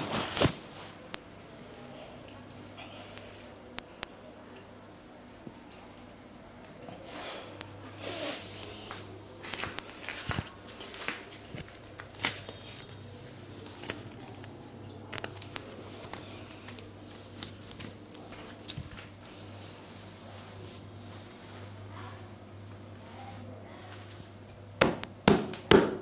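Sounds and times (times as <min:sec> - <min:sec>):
clothing rustling: 0:00.0 - 0:01.1
low steady hum: 0:00.0 - 0:26.0.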